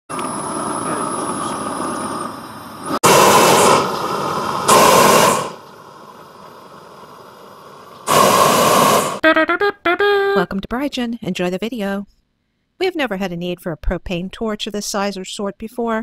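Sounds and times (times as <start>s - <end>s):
weed torch flame rushing: 2.8s - 9.2s.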